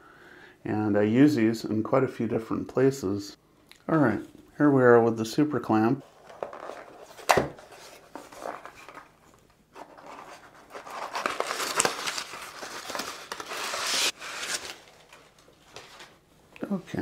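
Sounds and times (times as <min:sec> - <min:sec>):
packing paper rustling and crinkling: 0:06.1 - 0:16.2.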